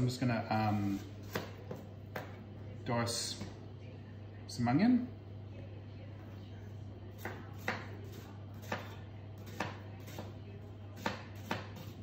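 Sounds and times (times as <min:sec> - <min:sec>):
knife chopping on plastic board: 0:01.2 - 0:02.4, 0:07.2 - 0:10.3, 0:11.0 - 0:12.0.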